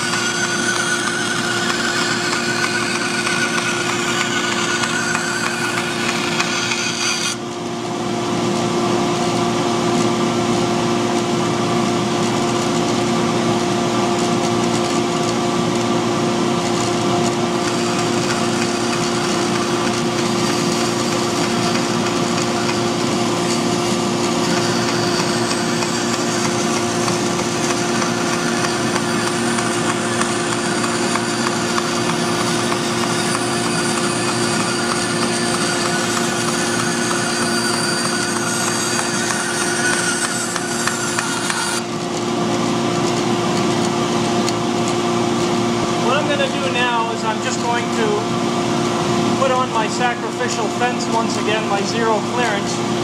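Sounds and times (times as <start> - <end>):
bandsaw cutting wood: 0.0 - 7.4, 16.7 - 45.0.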